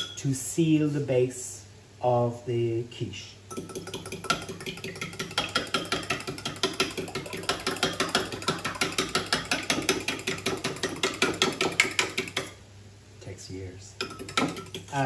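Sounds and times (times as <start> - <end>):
fork beating eggs in glass jug: 3.5 - 12.6, 14.0 - 15.0.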